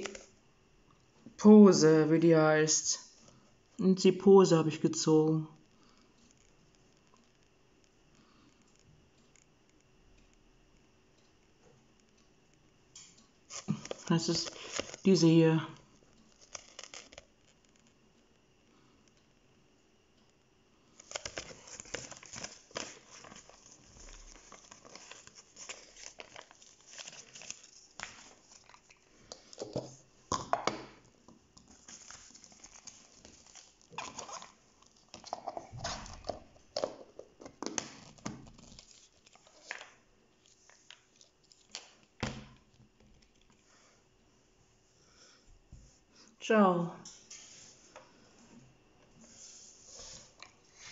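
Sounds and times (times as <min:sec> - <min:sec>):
paper and packaging crinkling: 0:00.0 - 0:00.3, 0:13.5 - 0:15.4, 0:16.1 - 0:18.0, 0:21.0 - 0:30.0, 0:31.6 - 0:42.1.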